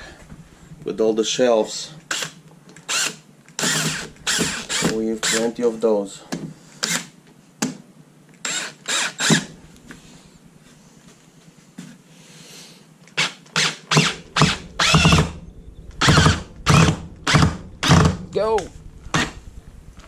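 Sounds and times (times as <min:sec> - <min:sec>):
cordless drill driving screw: 0:02.1 - 0:05.5, 0:08.4 - 0:09.5.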